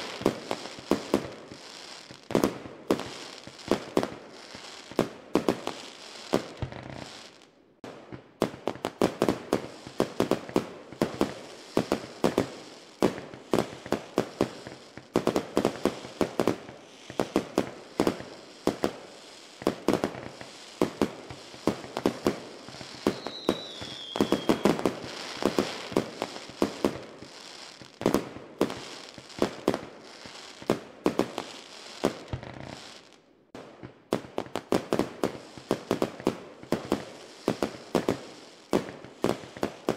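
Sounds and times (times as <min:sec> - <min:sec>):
fireworks bangs and crackles: 0:00.0 - 0:39.9.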